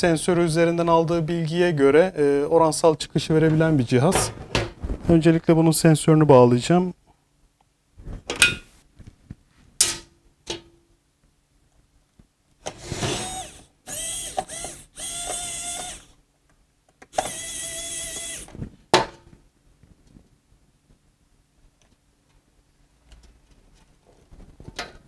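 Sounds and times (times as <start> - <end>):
rubbing whirring sounds: 12.7 - 16.1.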